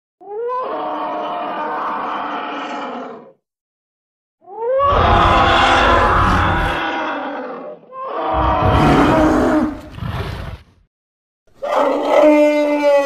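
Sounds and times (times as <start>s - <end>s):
deep rough roar: 4.8s - 7.0s, 8.3s - 10.7s.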